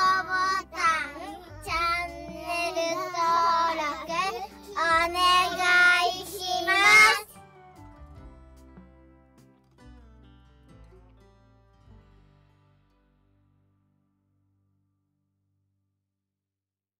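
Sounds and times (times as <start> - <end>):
child singing: 0.0 - 7.3
background music: 0.0 - 13.8.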